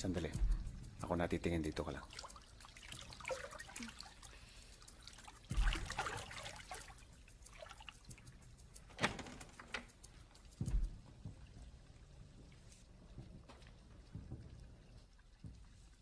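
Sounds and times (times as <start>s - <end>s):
water trickling and splashing: 0.0s - 16.0s
splashes with dull thump: 1.9s - 4.3s, 5.1s - 8.2s.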